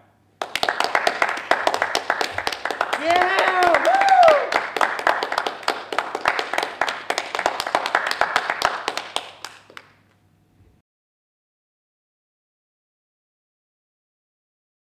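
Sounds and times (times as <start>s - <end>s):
people clapping: 0.0s - 10.1s.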